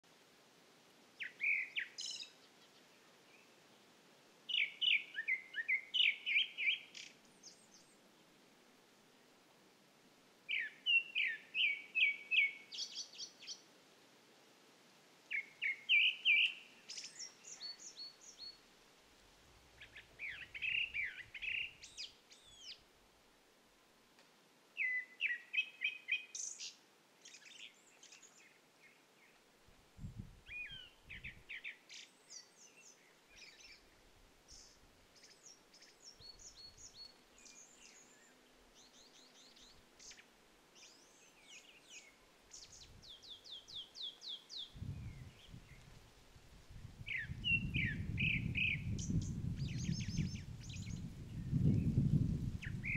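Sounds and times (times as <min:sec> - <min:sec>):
thrush singing whistled notes: 0:15.3 - 0:18.4, 0:47.1 - 0:52.0.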